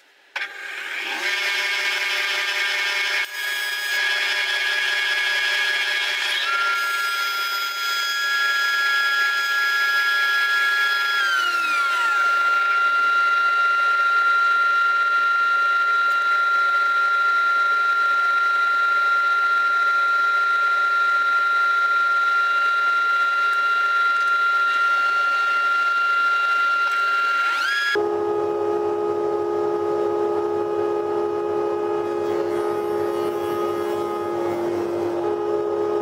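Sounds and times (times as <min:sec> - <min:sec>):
spindle moulder whining: 0:22.1 - 0:36.0.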